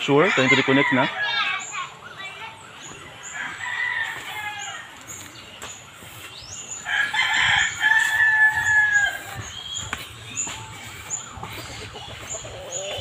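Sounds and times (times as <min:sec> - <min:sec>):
faint chicken calls: 0:00.0 - 0:13.0
rooster crowing: 0:00.1 - 0:01.5, 0:03.3 - 0:05.0, 0:06.8 - 0:09.5.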